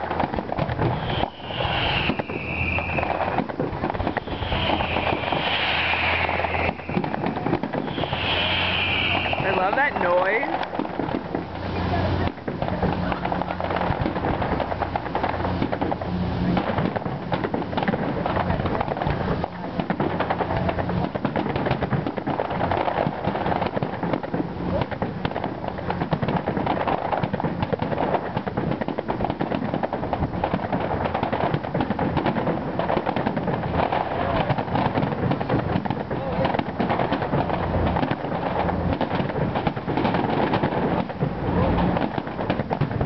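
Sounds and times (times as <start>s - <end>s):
fireworks bangs and crackling: 0.0s - 43.0s.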